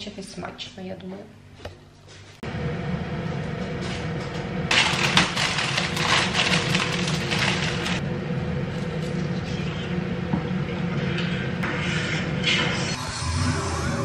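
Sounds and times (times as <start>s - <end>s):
steady low hum: 0.0s - 14.0s
crinkly plastic packaging: 4.7s - 8.0s.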